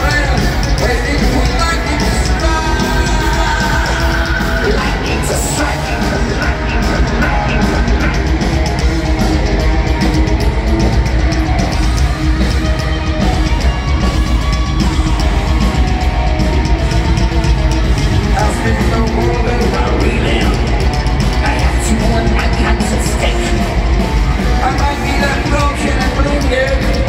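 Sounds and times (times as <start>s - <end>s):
person singing and shouting: 0.0s - 8.2s
bass: 0.0s - 27.0s
distorted electric guitars: 0.0s - 27.0s
drums: 0.0s - 27.0s.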